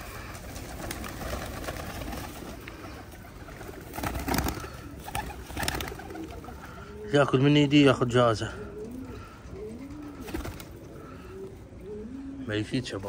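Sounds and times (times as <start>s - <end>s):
wings flapping: 0.0s - 6.8s, 8.9s - 11.1s
pigeons cooing: 0.0s - 13.0s.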